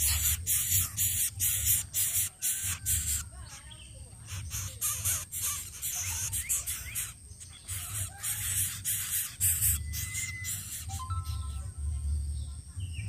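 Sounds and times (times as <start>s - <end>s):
nestlings hissing rasps: 0.0s - 11.6s
low rumble: 11.4s - 13.0s.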